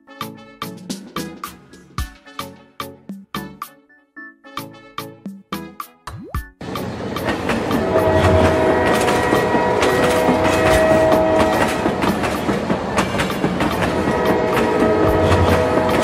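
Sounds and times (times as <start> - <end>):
wheels clicking on track: 6.6 - 16.0.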